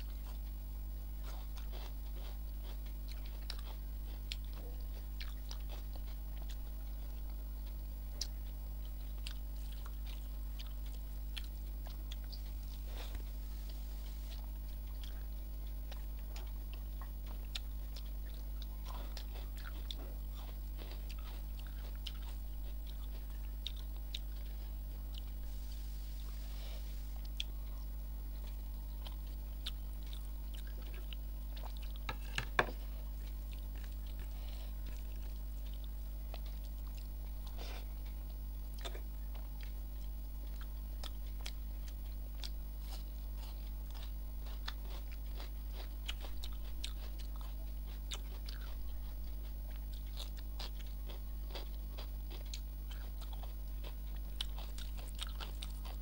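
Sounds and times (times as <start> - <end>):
chewing and biting: 0.0 - 25.4, 26.5 - 56.0
low hum: 2.4 - 44.4.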